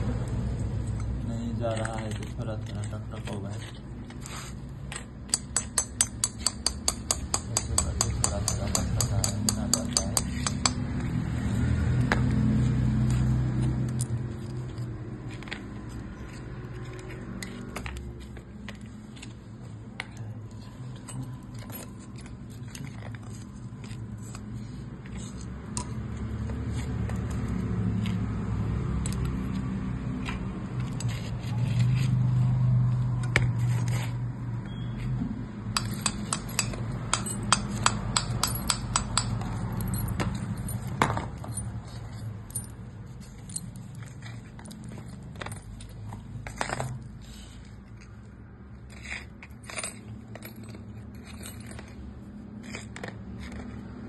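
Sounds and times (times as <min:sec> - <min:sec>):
metal tools clinking and scraping: 0:00.8 - 0:28.1, 0:29.0 - 0:32.4, 0:35.7 - 0:54.0.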